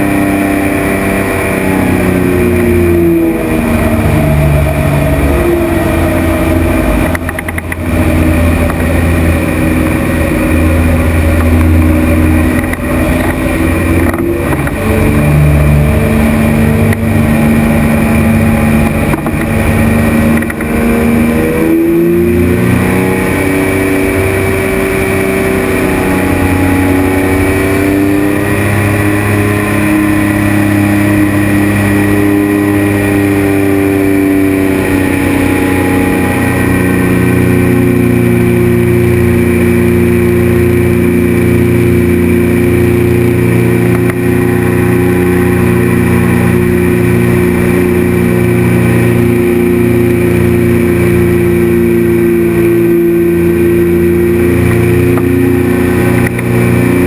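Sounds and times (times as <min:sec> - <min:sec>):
engine and propeller running: 0:00.0 - 0:57.0.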